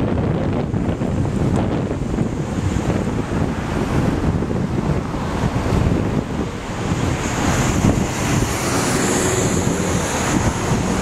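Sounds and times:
street traffic: 0.0s - 11.0s
wind buffeting microphone: 0.0s - 11.0s
passing car hiss: 3.1s - 11.0s.

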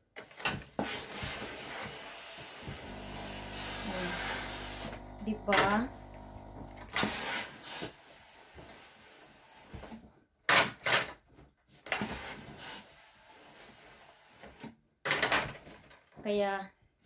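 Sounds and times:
iron sliding on cloth: 0.8s - 9.7s.

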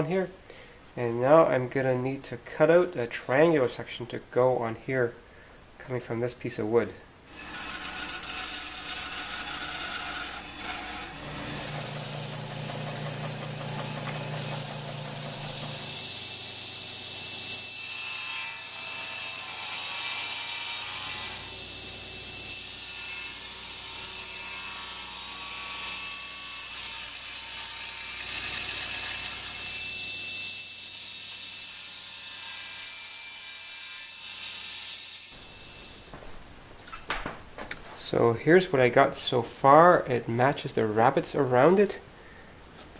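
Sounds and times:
band saw cutting wood: 7.3s - 36.1s
table saw cutting wood: 7.3s - 36.1s.

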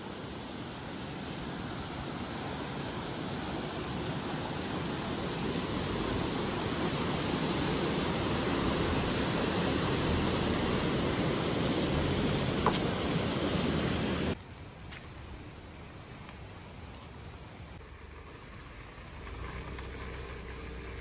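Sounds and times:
steady rushing noise: 0.0s - 14.5s.

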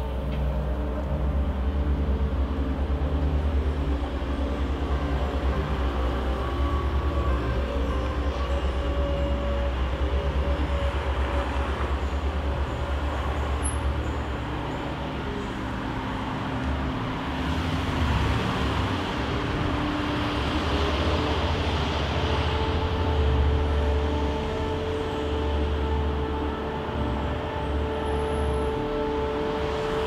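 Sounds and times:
hiss of passing vehicles: 0.0s - 30.0s
low engine rumble: 0.0s - 30.0s.

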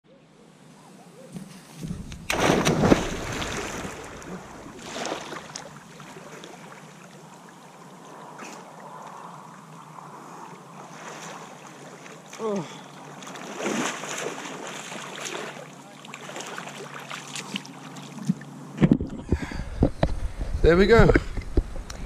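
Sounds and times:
water sloshing and splashing: 1.8s - 18.6s
loud splash of a dive: 2.2s - 6.3s.

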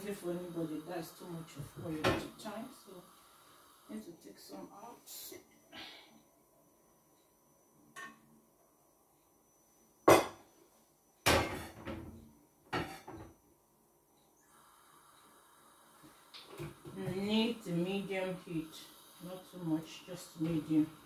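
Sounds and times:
gas burner hissing: 0.0s - 6.2s, 14.4s - 21.0s.

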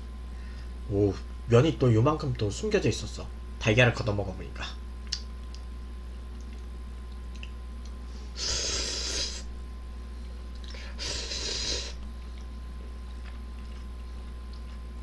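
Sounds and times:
person slurping noodles: 8.4s - 9.4s, 11.0s - 12.0s.

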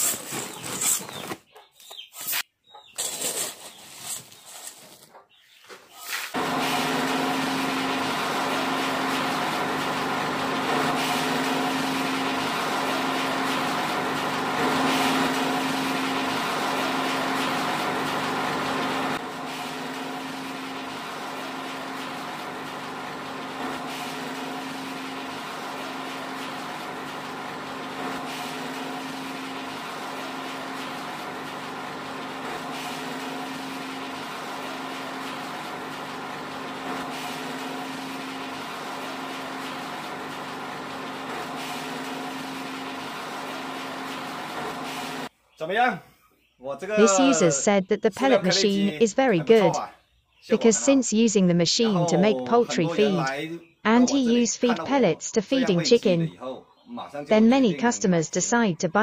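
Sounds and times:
pellet mill machine hum: 0.0s - 1.4s, 6.4s - 45.3s, 46.9s - 49.9s, 51.8s - 56.3s.

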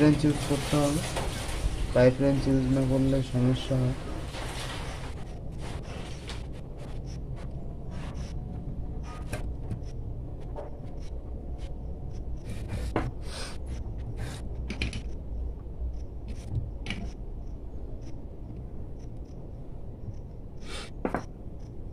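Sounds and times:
steady low hum: 0.0s - 21.9s.

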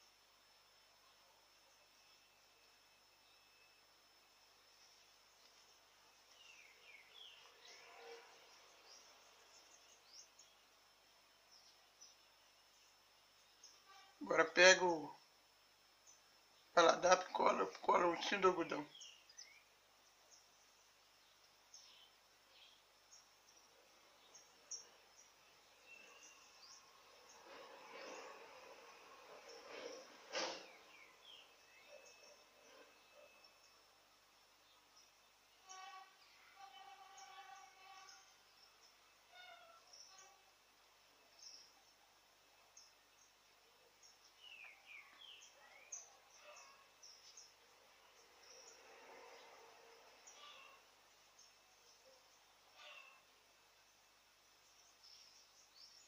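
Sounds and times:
faint room hiss: 0.0s - 56.0s
sliding bird calls: 27.4s - 30.9s.

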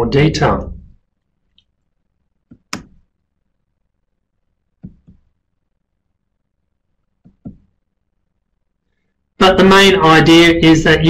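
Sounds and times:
double clicks: 2.5s - 3.0s.

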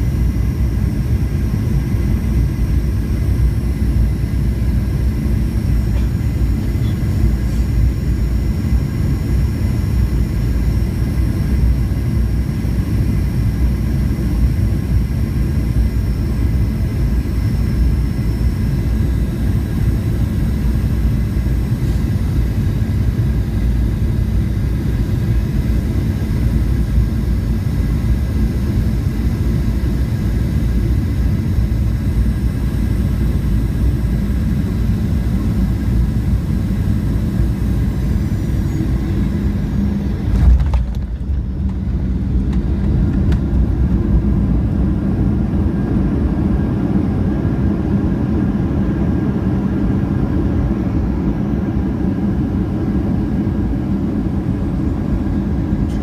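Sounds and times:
jet engines roaring: 0.0s - 56.0s
faint whining tones: 0.1s - 13.2s, 14.4s - 44.9s.

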